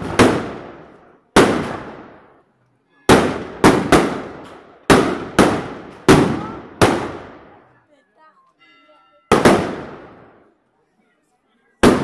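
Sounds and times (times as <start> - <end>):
firecrackers exploding: 0.0 - 2.5, 3.1 - 7.6, 9.3 - 10.5, 11.8 - 12.0.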